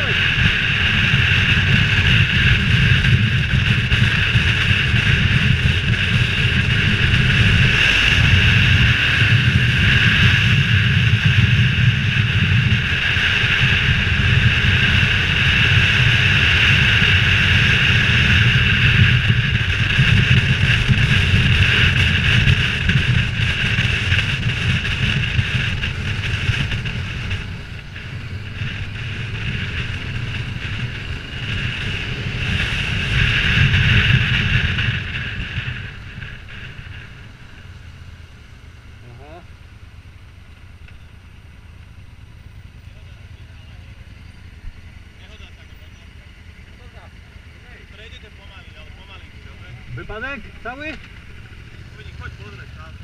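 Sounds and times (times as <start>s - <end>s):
wind rushing over microphone: 0.0s - 40.2s
motorcycle engine: 0.0s - 53.0s.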